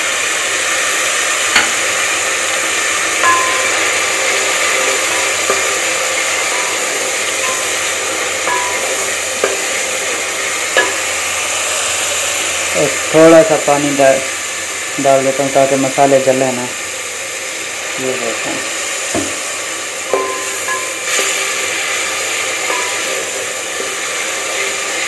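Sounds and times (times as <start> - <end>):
masala sizzling in a metal pot: 0.0 - 25.0
spatula knocking and scraping pot: 1.5 - 2.0, 3.2 - 10.0, 10.7 - 11.2, 19.1 - 19.4, 22.6 - 23.3.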